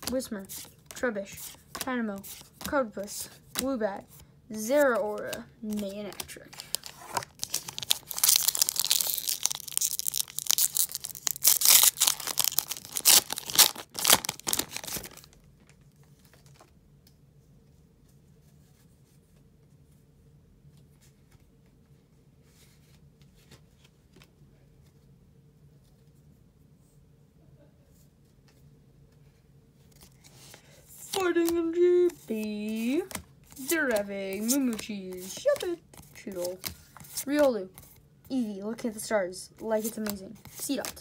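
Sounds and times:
cards ticking: 0:04.6 - 0:15.1, 0:31.0 - 0:37.5
foil wrapper tearing and crinkling: 0:06.7 - 0:15.3.

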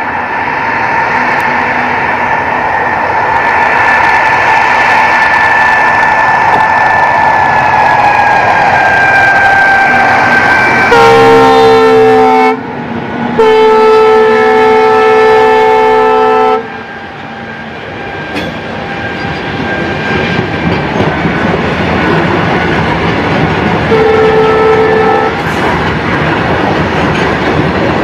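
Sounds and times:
locomotive air horn blasts: 0:09.4 - 0:12.6, 0:13.4 - 0:16.8, 0:23.9 - 0:25.5
freight wagons clickety-clack: 0:18.3 - 0:24.2, 0:25.4 - 0:28.0.

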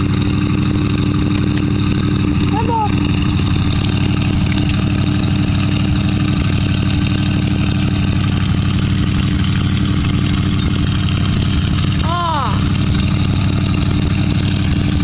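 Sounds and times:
pickup truck engine idling: 0:00.0 - 0:15.0.

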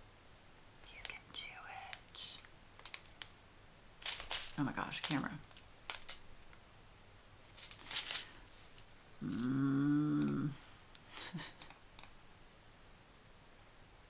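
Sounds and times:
plastic bag crinkling: 0:01.8 - 0:03.4, 0:04.0 - 0:06.6, 0:07.4 - 0:09.4
low hummed voice: 0:09.2 - 0:11.6.

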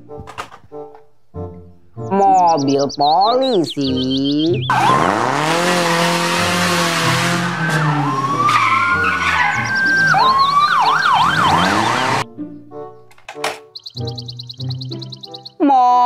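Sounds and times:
tyres skidding: 0:03.5 - 0:12.3
car engine revving: 0:04.5 - 0:12.3
police siren wailing and yelping: 0:04.6 - 0:12.2.

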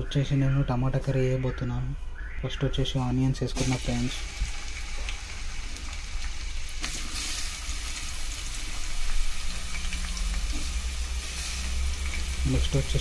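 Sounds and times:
onions sizzling in hot oil: 0:03.6 - 0:13.0.

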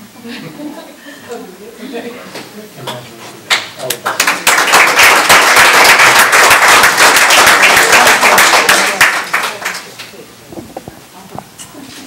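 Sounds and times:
roomful of people applauding: 0:03.5 - 0:10.0.

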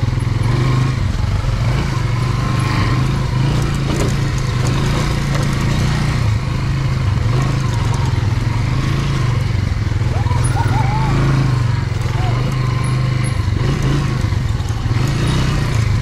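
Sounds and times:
dirt bike engine running: 0:00.0 - 0:16.0
small clatters from terrain: 0:02.6 - 0:09.6.

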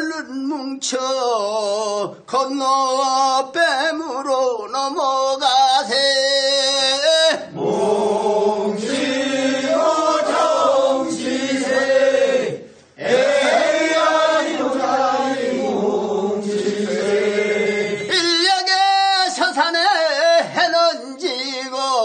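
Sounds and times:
voices chanting a work song: 0:07.3 - 0:18.4.

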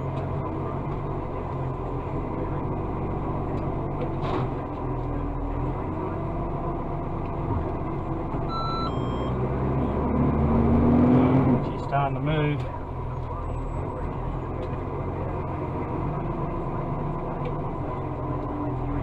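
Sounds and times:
diesel engine running: 0:00.0 - 0:19.0
two-note electronic beep: 0:08.5 - 0:09.4.

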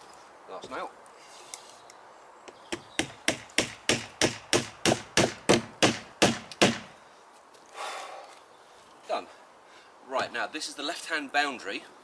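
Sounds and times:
hammer striking nail: 0:02.7 - 0:06.9.

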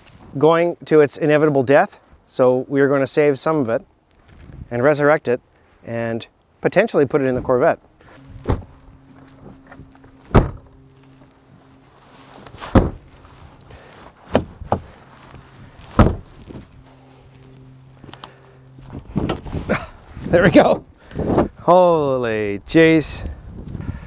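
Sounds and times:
heavy thunks on truck body: 0:08.3 - 0:08.8, 0:10.3 - 0:10.7, 0:12.6 - 0:13.1, 0:14.3 - 0:14.9, 0:15.9 - 0:16.6, 0:18.9 - 0:19.7.

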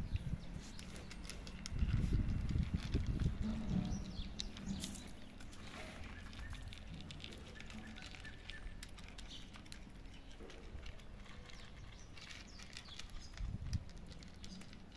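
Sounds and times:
cats crunching dry kibble: 0:00.0 - 0:14.9
clicks of pellets on plates: 0:03.9 - 0:14.9.

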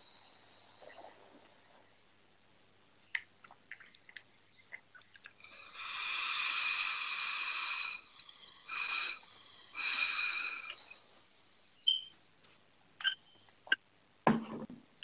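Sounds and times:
whistling hiss of vaping draw: 0:05.5 - 0:11.0.

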